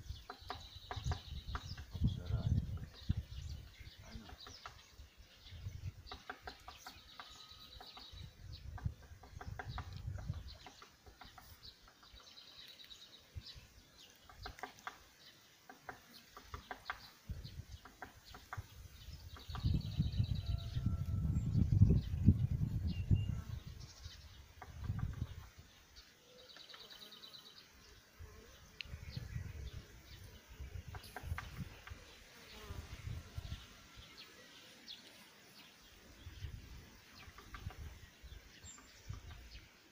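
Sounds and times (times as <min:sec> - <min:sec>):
birds chirping and calling: 0:00.0 - 0:39.9
low rumble on microphone: 0:19.6 - 0:23.9.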